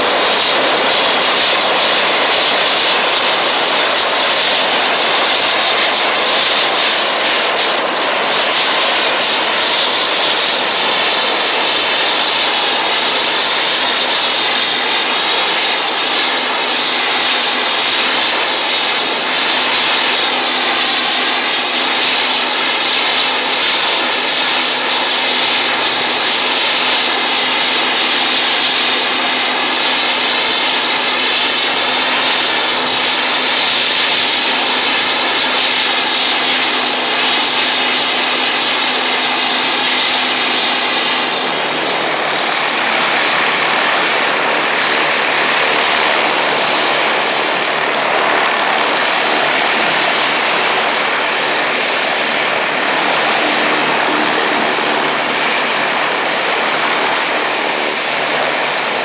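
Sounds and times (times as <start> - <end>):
helicopter turbine whine: 0.0 - 59.0.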